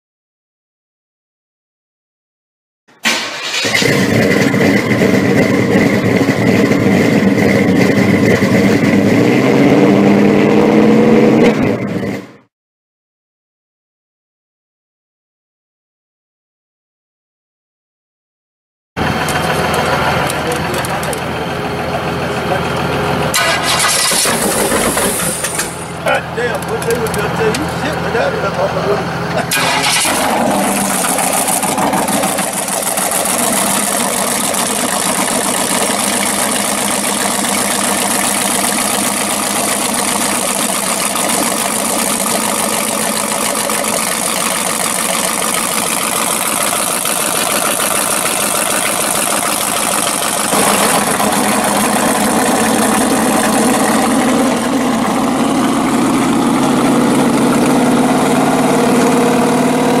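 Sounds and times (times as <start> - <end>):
engine idling through open exhaust: 19.0 - 59.2.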